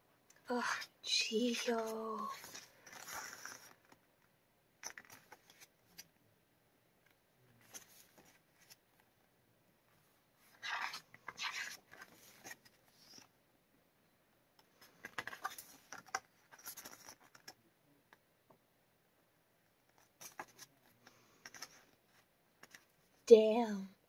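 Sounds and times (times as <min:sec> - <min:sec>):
book pages rustling: 0:01.4 - 0:04.1, 0:04.8 - 0:06.1, 0:07.6 - 0:08.8, 0:10.0 - 0:13.3, 0:14.7 - 0:17.6, 0:19.8 - 0:23.2.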